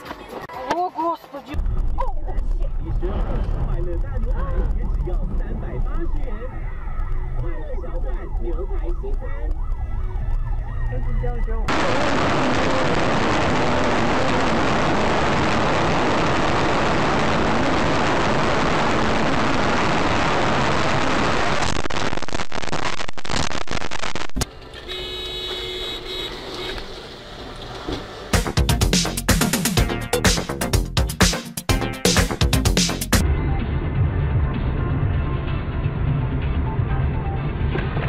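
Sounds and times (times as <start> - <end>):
road and wind noise: 0.0 - 22.3, 24.0 - 28.4, 33.2 - 38.0
siren: 6.5 - 21.8.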